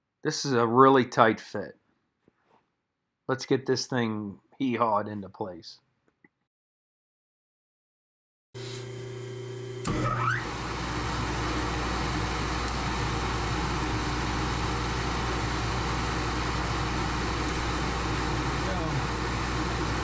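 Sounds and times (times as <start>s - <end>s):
milling machine motor running: 8.6s - 20.0s.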